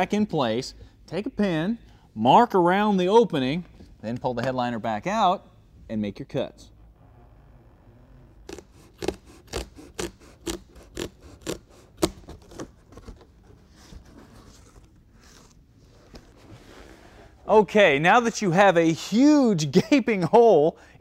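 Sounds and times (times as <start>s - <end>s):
scissors snipping fabric: 8.5s - 12.2s.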